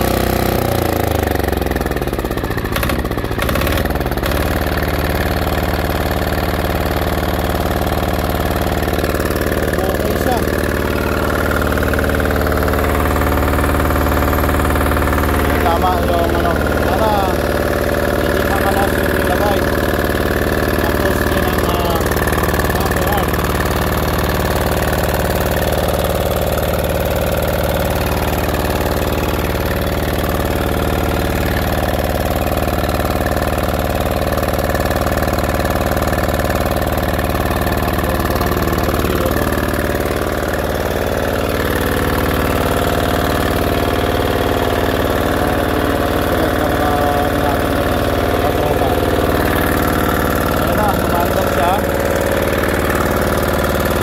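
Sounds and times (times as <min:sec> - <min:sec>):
small diesel engine running: 0:00.0 - 0:54.0.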